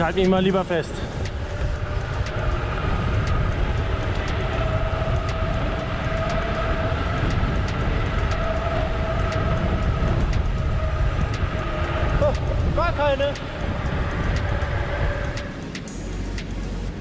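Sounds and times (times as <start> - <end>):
bicycle tyres humming on asphalt: 0.0 - 17.0
light regular ticking: 0.0 - 17.0
wind rushing over microphone: 0.0 - 17.0.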